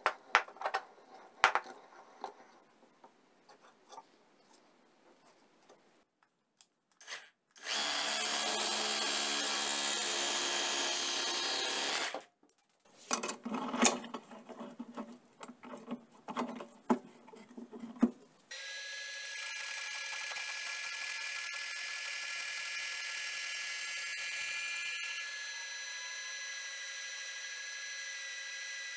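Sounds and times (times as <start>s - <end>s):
power tool running: 7.0s - 12.2s, 18.5s - 28.9s.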